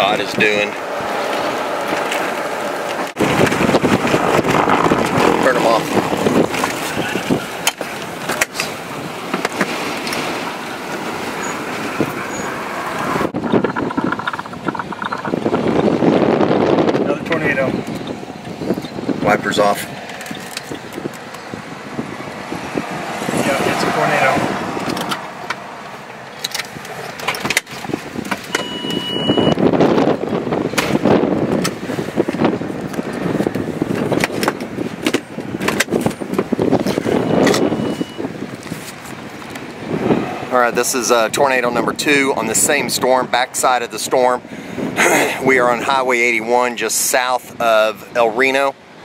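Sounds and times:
dull cabin rumble: 0:00.0 - 0:43.4
road and wind noise in vehicle: 0:00.0 - 0:49.0
short high beep: 0:28.6 - 0:29.6, 0:37.2 - 0:38.2.

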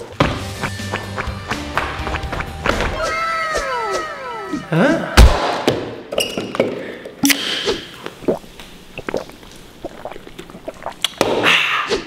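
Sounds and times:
man gulping soda: 0:08.0 - 0:11.4.

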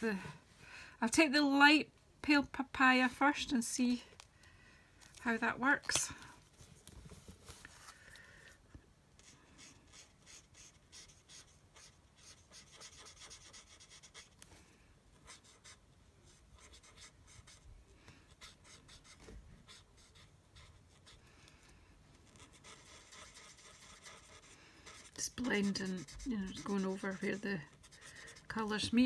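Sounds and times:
marker scratching on card: 0:09.2 - 0:14.4, 0:15.2 - 0:17.6, 0:18.3 - 0:21.2, 0:22.3 - 0:29.0.

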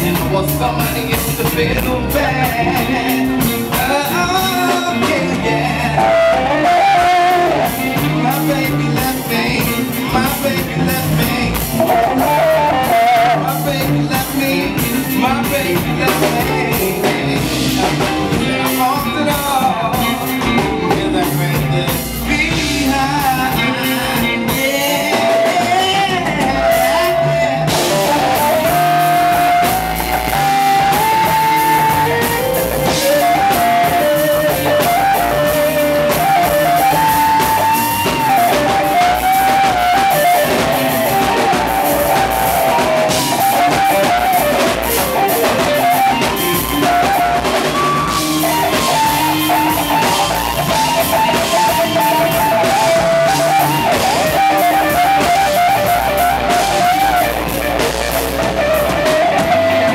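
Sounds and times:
live band playing soul blues: 0:00.0 - 0:59.9
lead guitar held notes: 0:25.8 - 0:59.9.

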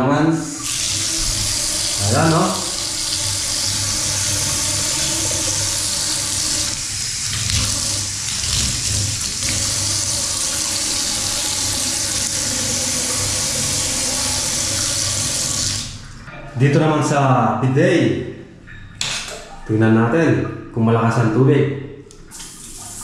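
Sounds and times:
water pouring into bathtub: 0:00.5 - 0:16.1, 0:22.2 - 0:23.0.

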